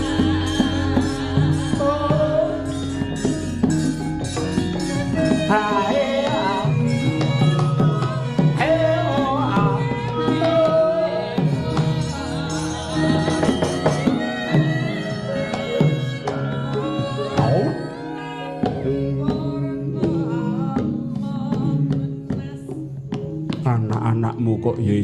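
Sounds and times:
women singing: 0.0 - 23.3
ringing bronze percussion tones: 0.0 - 24.3
hand drum rhythm: 0.0 - 24.8.

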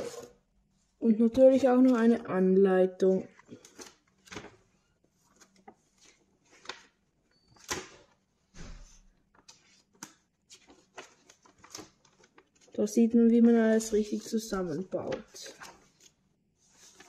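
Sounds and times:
paper pages rustling: 0.0 - 0.4, 3.1 - 17.0.

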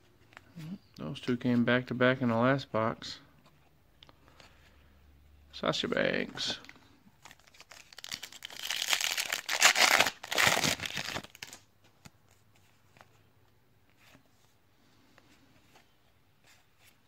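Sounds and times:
foil wrapper tearing and crinkling: 7.2 - 11.6.

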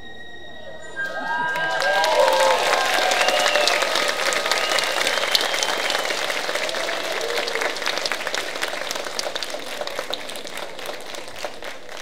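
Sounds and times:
audience applauding: 1.0 - 12.0.

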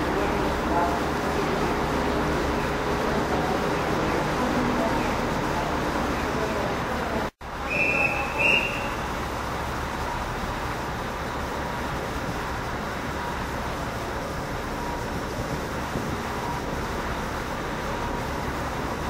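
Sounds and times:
electric train humming: 0.0 - 19.0
short high whistle blasts: 7.6 - 9.1.

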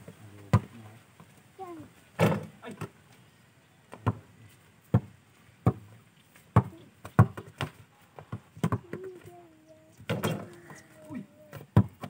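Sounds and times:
basketball bouncing on bare ground: 0.0 - 0.8, 2.2 - 3.0, 3.9 - 9.4, 10.0 - 10.8, 11.5 - 12.0.

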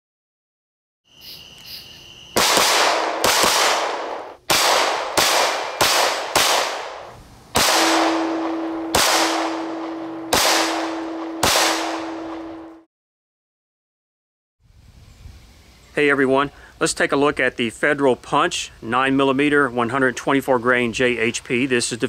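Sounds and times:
handgun shots with echo: 2.4 - 7.0, 7.6 - 12.7.

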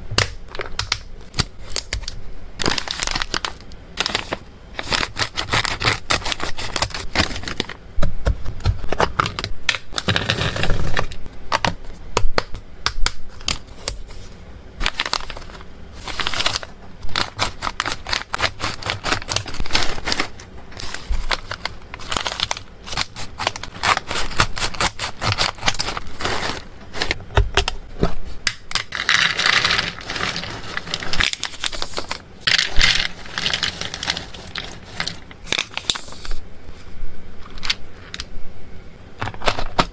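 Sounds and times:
scissors cutting foil bags: 0.2 - 7.8, 14.8 - 27.2
foil bags crinkling: 0.5 - 7.8, 14.8 - 27.2, 28.5 - 36.4
treats rattling into plastic container: 14.8 - 27.2, 28.7 - 36.2.

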